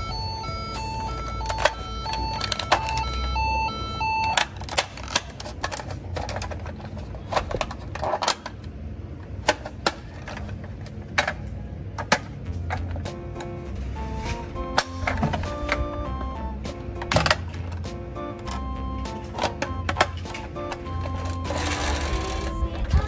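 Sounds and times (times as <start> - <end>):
toy electronic two-tone siren: 0.0 - 4.5
plastic toy doors clicking: 4.2 - 8.6, 18.4 - 22.6.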